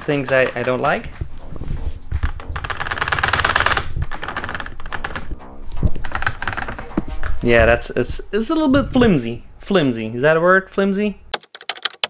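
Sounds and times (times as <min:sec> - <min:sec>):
chair armrest mechanism clicking: 0:02.2 - 0:07.6.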